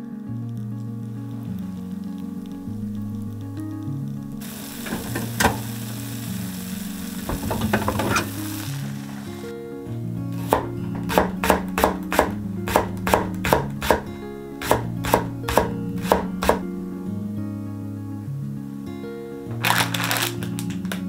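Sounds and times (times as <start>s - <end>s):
soft background music: 0.0s - 21.0s
cheese and tofu sizzling in a skillet: 0.3s - 17.4s
knife chopping on wooden board: 10.4s - 16.6s.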